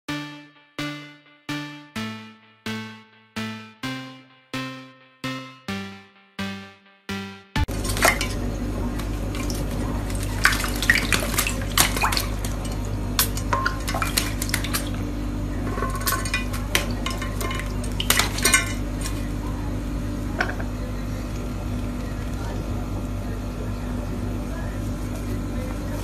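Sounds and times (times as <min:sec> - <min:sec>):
steady low hum: 0:07.6 - 0:26.0
bird splashing in water: 0:09.3 - 0:15.0
clicks and knocks against dish: 0:20.4 - 0:20.7.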